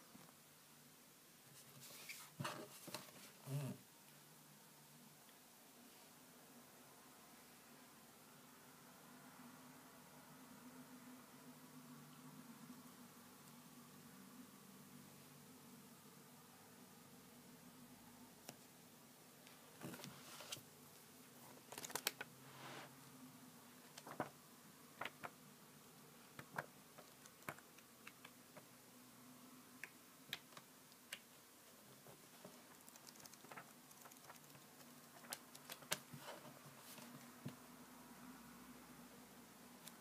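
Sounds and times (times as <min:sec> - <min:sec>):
faint low hum: 0:00.0 - 0:40.0
booklet pages turning: 0:21.5 - 0:22.3, 0:23.9 - 0:24.4, 0:25.0 - 0:25.3, 0:32.2 - 0:37.1.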